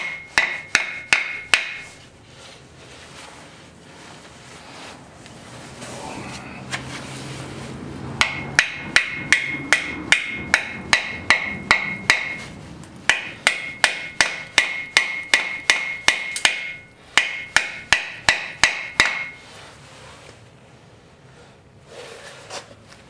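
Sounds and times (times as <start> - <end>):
hammer striking metal: 0.0 - 2.0, 8.2 - 19.4.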